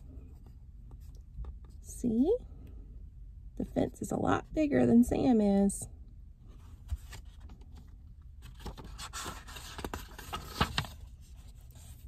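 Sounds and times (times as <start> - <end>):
paper page rustling: 6.8 - 12.0.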